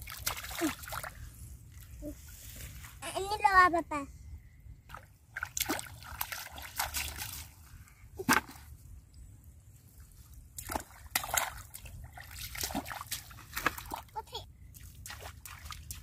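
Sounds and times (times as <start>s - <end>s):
muddy water splashing: 0.0s - 2.3s, 4.9s - 8.8s, 9.9s - 16.0s.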